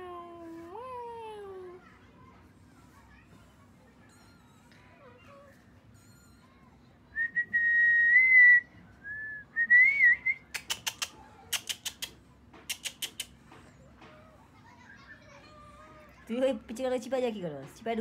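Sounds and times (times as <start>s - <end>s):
person whistling: 7.2s - 10.5s
sharp clicks: 10.5s - 13.4s.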